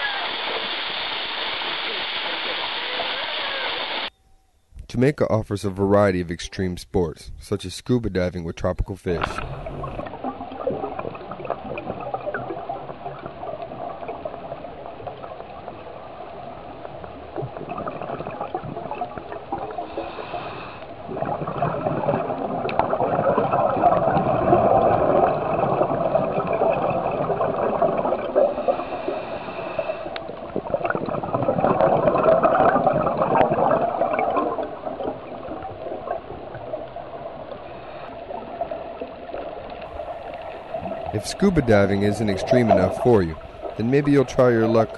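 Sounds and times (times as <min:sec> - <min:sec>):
underwater clicks: 0:09.1 - 0:14.3
underwater gurgling and bubbling: 0:09.1 - 0:44.9.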